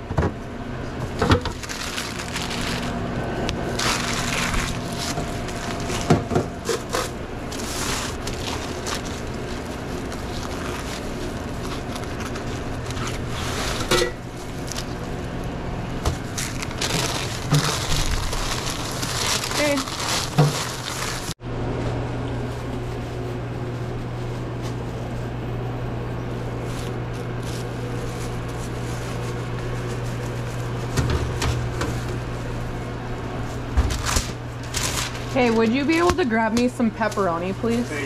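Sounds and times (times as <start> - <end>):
steady hum: 0.0 - 38.0
packaging crinkling: 1.4 - 15.2, 16.1 - 21.4, 26.4 - 31.0, 33.5 - 35.8.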